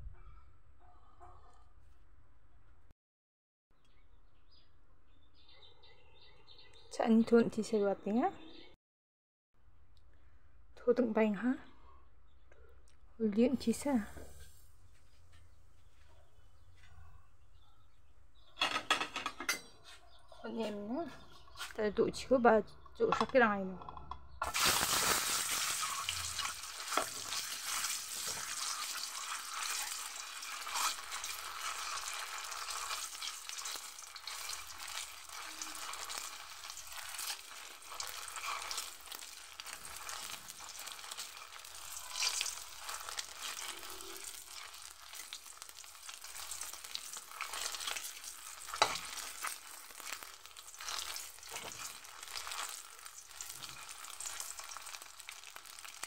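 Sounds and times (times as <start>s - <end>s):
eggs sizzling in hot oil: 13.5s - 15.0s, 24.4s - 56.0s
metal spatula scraping pan: 33.6s - 45.2s, 47.0s - 50.2s, 50.8s - 52.8s.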